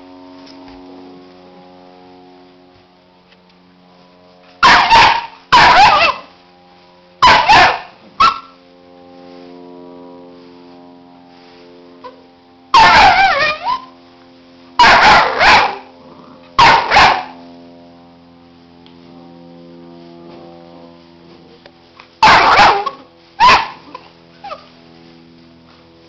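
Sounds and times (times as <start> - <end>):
puppies barking and yelping: 4.6 - 6.3, 7.2 - 8.5, 12.8 - 13.9, 14.8 - 15.9, 22.2 - 24.7.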